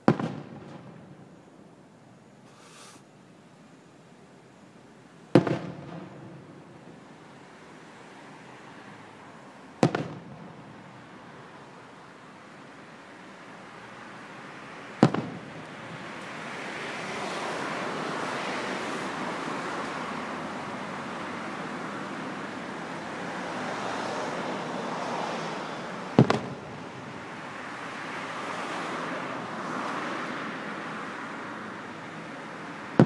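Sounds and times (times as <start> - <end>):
firework shells bursting: 5.3 - 6.6, 9.8 - 10.7, 15.0 - 16.3, 26.2 - 26.8.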